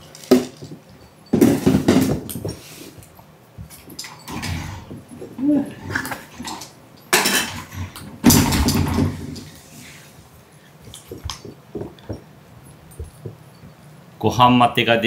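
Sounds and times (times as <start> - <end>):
food bowl clattering: 0.0 - 9.7, 10.8 - 13.8
cats chewing and licking: 9.6 - 13.9.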